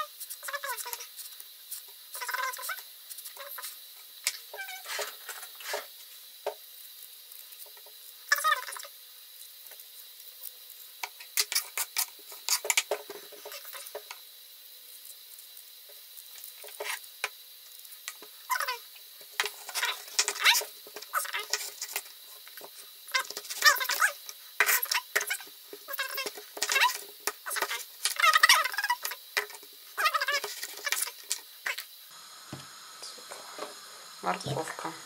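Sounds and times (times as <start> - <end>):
peeler scraping potatoes: 11.0 - 14.1, 18.1 - 31.8.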